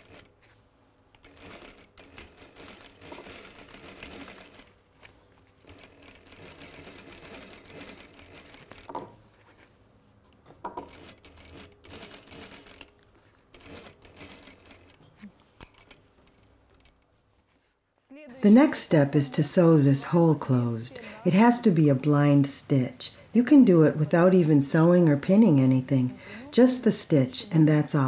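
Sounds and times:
sewing machine stitching: 0.0s - 0.3s, 1.2s - 4.7s, 5.6s - 8.9s, 10.8s - 12.9s, 13.5s - 14.9s.

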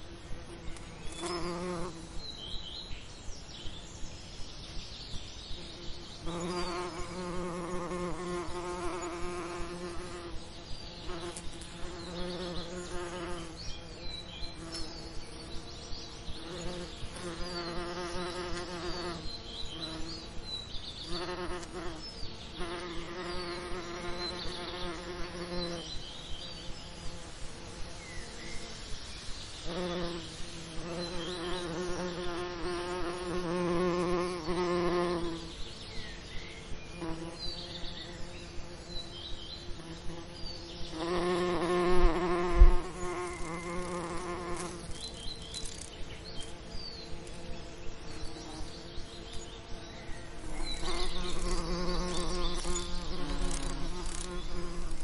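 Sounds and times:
bees buzzing: 0.0s - 2.5s, 5.5s - 55.0s.

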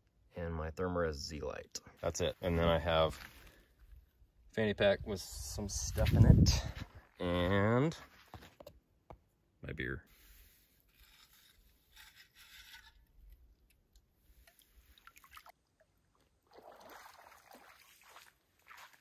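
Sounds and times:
footsteps crunching on gravel: 2.3s - 3.6s, 5.9s - 7.1s
water sloshing and trickling: 11.4s - 19.0s.

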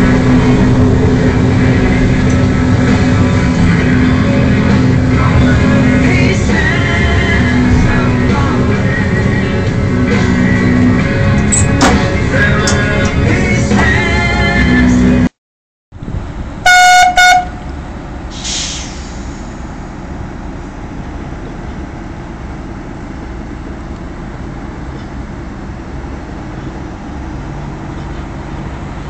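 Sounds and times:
diesel engine running: 0.0s - 15.3s, 16.0s - 29.0s
horn toots: 16.6s - 17.6s
brief hiss: 18.3s - 19.7s.

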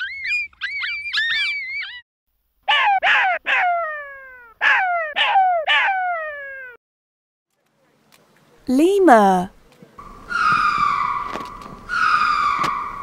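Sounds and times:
jackal yipping and yelping: 0.0s - 2.0s, 2.7s - 6.7s, 10.3s - 13.0s.

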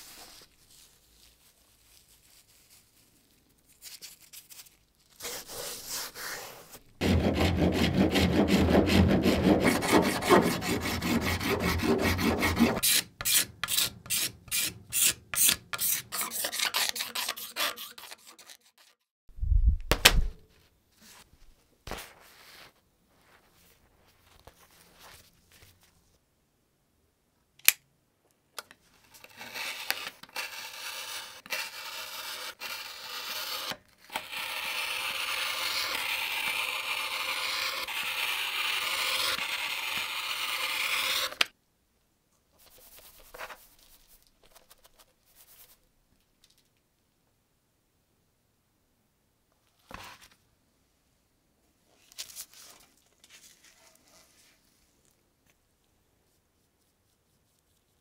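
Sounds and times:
hand tool scraping workpiece: 6.2s - 19.0s.

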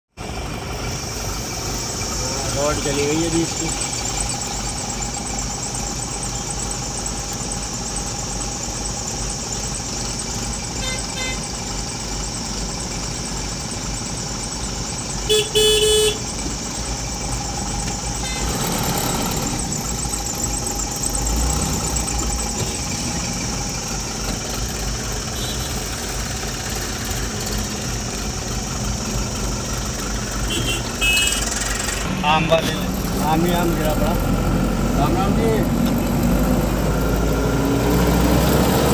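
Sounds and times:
road traffic: 0.0s - 38.9s
vehicle engine idling: 0.1s - 38.9s
car horn honking: 10.7s - 11.6s, 15.2s - 16.4s, 18.0s - 19.5s, 25.2s - 26.0s, 30.4s - 33.7s
short horn toots: 15.3s - 16.3s, 18.2s - 18.8s, 30.5s - 31.5s.

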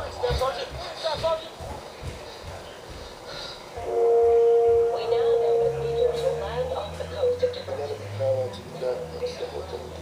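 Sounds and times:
sustained orchestral chord: 3.8s - 7.4s.

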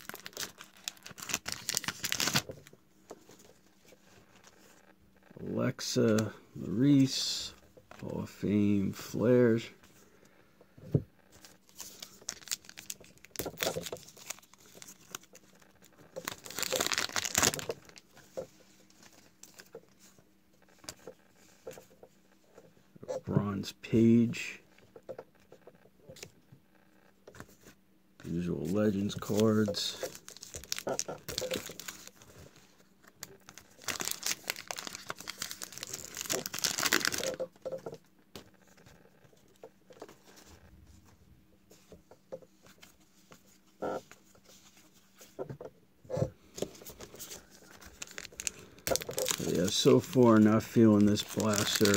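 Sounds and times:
plastic wrapper crinkling and tearing: 0.0s - 3.6s, 11.4s - 18.3s, 29.1s - 37.7s, 46.6s - 51.9s.

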